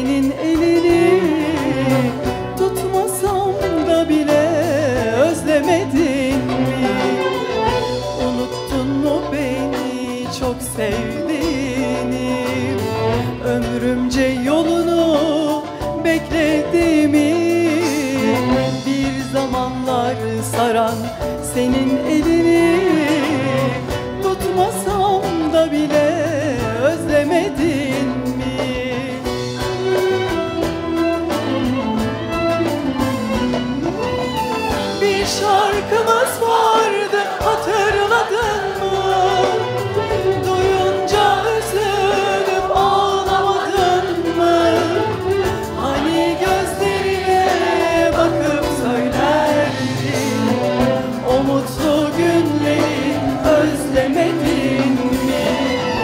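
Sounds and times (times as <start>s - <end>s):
instrumental ensemble: 0.0s - 56.0s
woman singing: 0.0s - 56.0s
choir singing: 0.6s - 2.4s, 34.6s - 56.0s.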